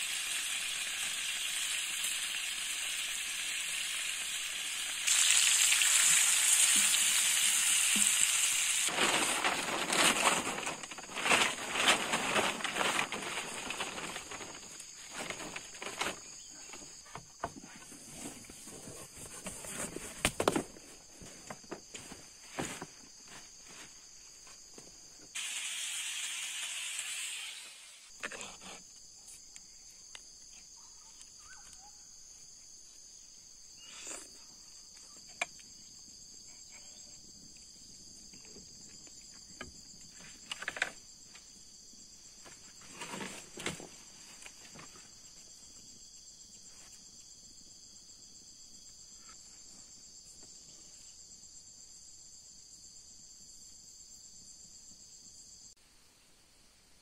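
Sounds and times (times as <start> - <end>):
insects chirring: 0.0 - 55.8
knocks and rustles among logs: 8.9 - 25.3, 42.4 - 45.2.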